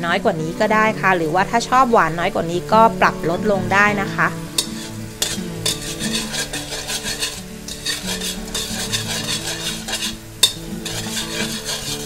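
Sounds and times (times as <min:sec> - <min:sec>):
sauce sizzling and bubbling: 0:00.1 - 0:12.0
metal spatula scraping wok: 0:02.6 - 0:12.0.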